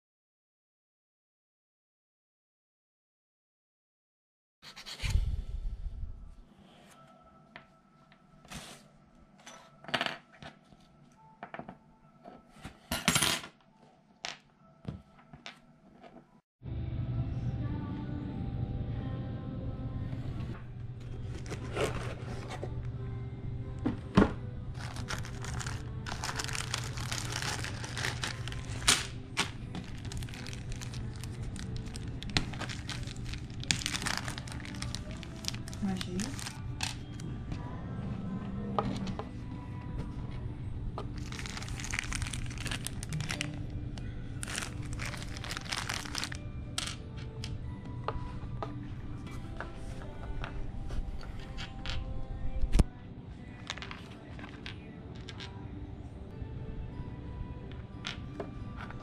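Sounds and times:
background music: 0:04.8 - 0:59.0
plastic bags crinkling: 0:24.8 - 0:37.0, 0:41.2 - 0:43.7, 0:44.4 - 0:46.9.

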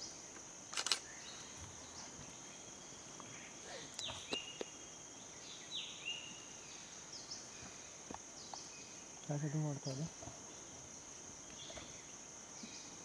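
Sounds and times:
sharp clicks: 0:00.7 - 0:01.0.

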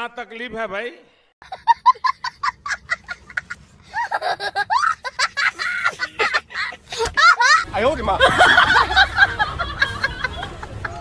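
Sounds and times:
young child laughing: 0:01.4 - 0:07.7.

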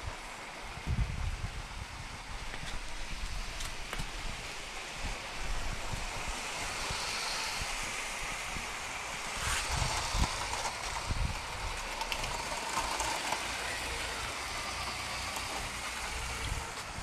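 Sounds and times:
toy train wheels rattling on rails: 0:04.5 - 0:17.0.

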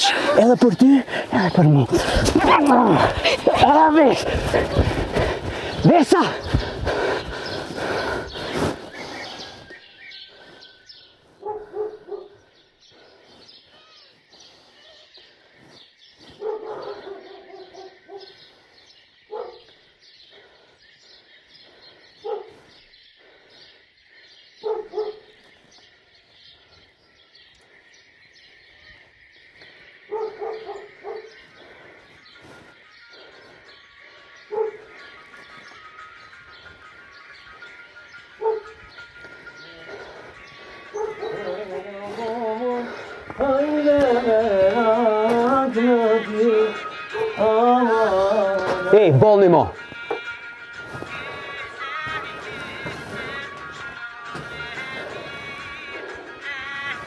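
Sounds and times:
dog barking: 0:11.4 - 0:12.4, 0:16.4 - 0:18.3, 0:19.3 - 0:19.8, 0:22.2 - 0:22.6, 0:24.6 - 0:25.3, 0:30.1 - 0:31.3, 0:34.5 - 0:34.9, 0:38.4 - 0:38.8, 0:40.9 - 0:41.4, 0:47.1 - 0:47.4.

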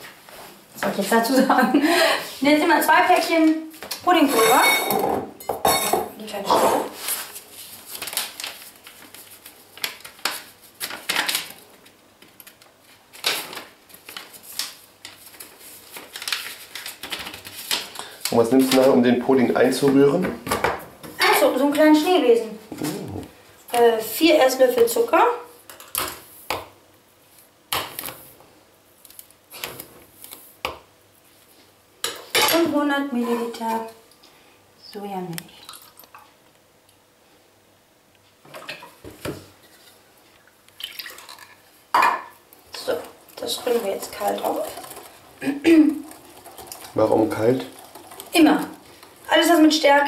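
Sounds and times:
paper packets tearing and rustling: 0:07.0 - 0:19.0
person speaking: 0:21.2 - 0:24.1.

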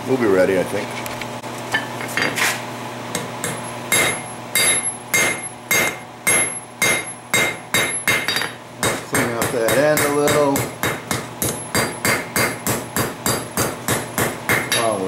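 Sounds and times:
hammer striking steel on anvil: 0:03.2 - 0:15.0.

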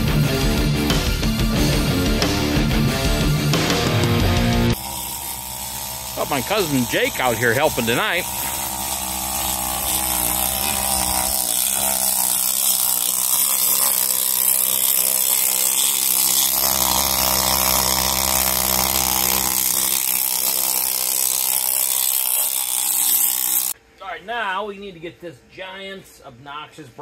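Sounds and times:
needle scaler hammering on steel: 0:04.8 - 0:23.8.

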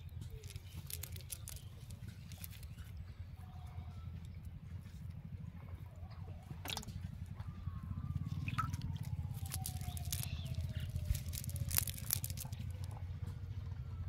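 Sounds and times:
low steady rumble: 0:00.0 - 0:14.0
cast net clicking and rustling: 0:00.2 - 0:02.8, 0:08.4 - 0:13.0.

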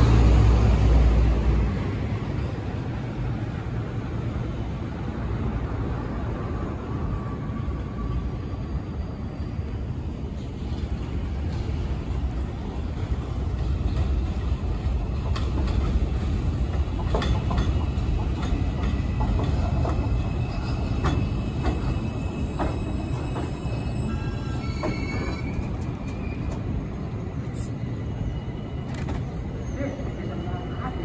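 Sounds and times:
subway train rumbling: 0:00.0 - 0:31.0
wheels clacking over rail joints: 0:13.0 - 0:26.8
high-pitched wheel squeal: 0:20.3 - 0:26.7.

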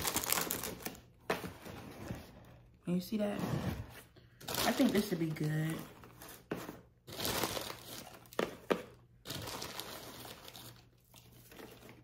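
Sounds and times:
paper shred and plastic rustling: 0:03.4 - 0:08.4.

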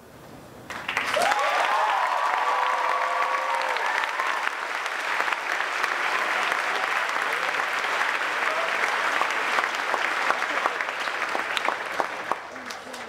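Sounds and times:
audience applauding: 0:00.7 - 0:13.0
shouted whoops: 0:01.0 - 0:04.7.

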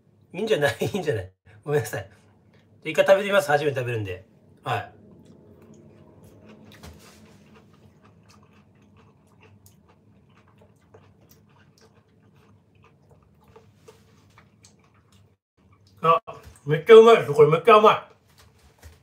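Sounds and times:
person chewing fruit: 0:05.0 - 0:16.0.

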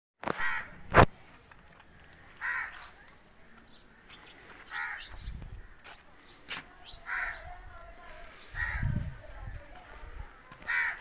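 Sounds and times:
crow cawing: 0:00.4 - 0:00.7, 0:02.3 - 0:03.0, 0:03.9 - 0:06.0, 0:07.0 - 0:07.5, 0:08.5 - 0:09.0, 0:10.5 - 0:11.0
small birds chirping: 0:01.7 - 0:11.0.

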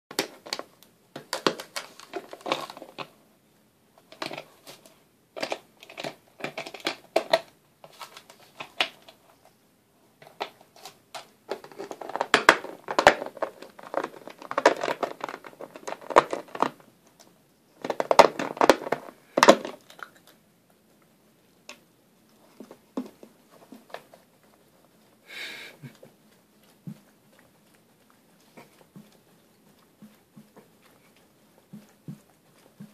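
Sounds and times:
plastic bottle crinkling: 0:00.1 - 0:03.2, 0:10.2 - 0:17.2, 0:17.8 - 0:20.4.

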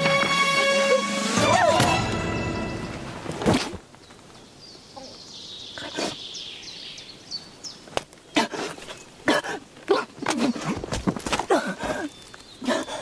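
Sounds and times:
small bird chirping: 0:04.0 - 0:08.4.

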